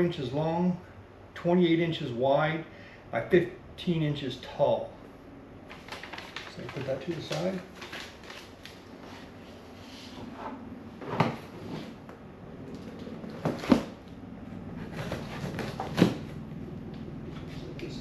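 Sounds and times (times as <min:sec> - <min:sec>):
cardboard box scraping on table: 0:10.0 - 0:12.0.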